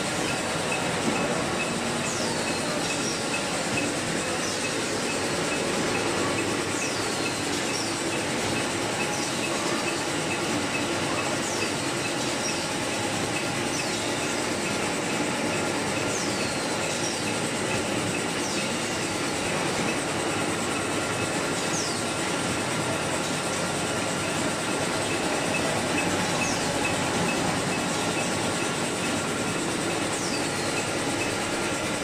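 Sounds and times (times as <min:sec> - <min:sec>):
machine mechanical clatter: 0:00.0 - 0:32.0.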